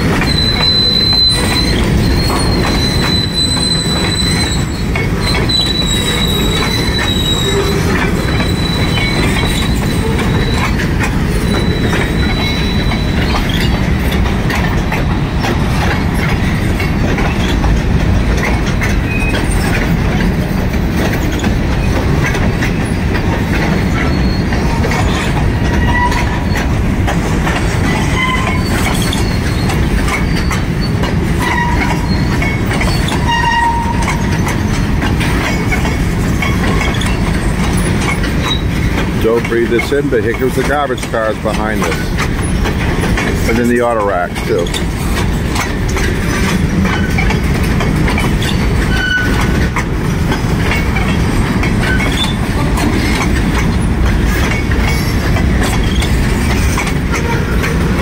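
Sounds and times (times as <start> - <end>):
high wheel squeal: 0.0 - 14.1, 18.4 - 19.9, 23.8 - 26.8, 27.7 - 58.0
train wheels rumbling on rail: 0.0 - 58.0.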